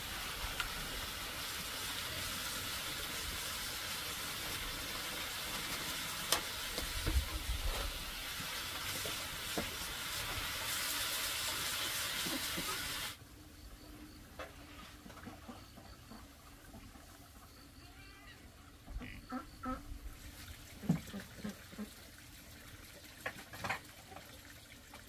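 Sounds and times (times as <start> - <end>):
greens sizzling in a frying pan: 0.0 - 13.2.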